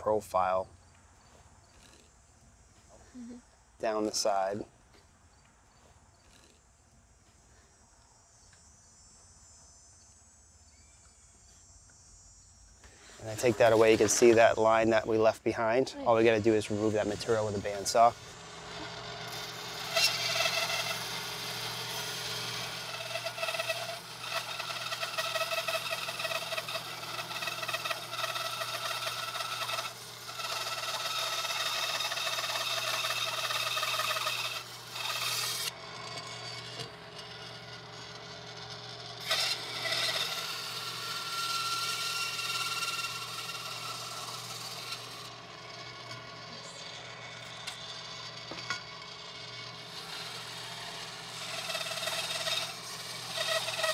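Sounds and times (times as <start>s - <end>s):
motor hum: 8.4s - 53.9s
bandsaw cutting plastic board: 13.2s - 15.0s, 16.6s - 46.8s, 47.4s - 53.9s.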